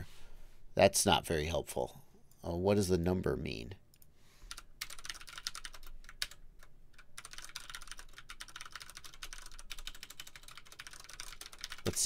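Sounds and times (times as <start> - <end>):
typing on computer keyboard: 4.5 - 12.0.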